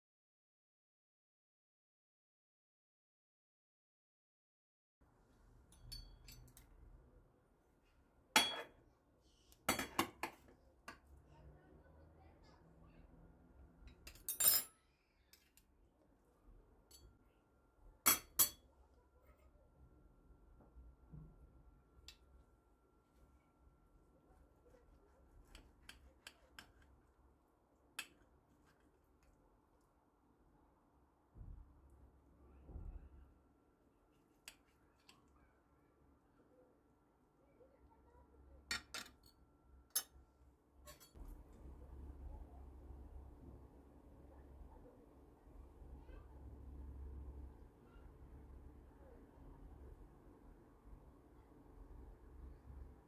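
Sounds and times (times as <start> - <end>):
knife and fork clinking on plate: 5.7 - 6.6, 8.4 - 8.8, 18.1 - 18.6, 40.9 - 41.2.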